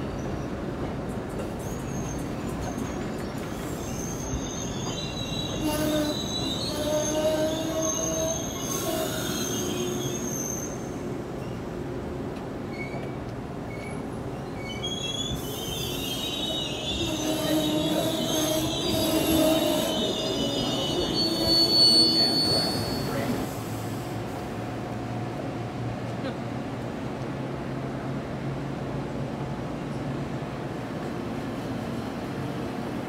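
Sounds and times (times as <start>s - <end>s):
train coaches rumbling past: 0.0s - 33.0s
train wheels squealing: 1.3s - 11.7s, 12.6s - 24.1s.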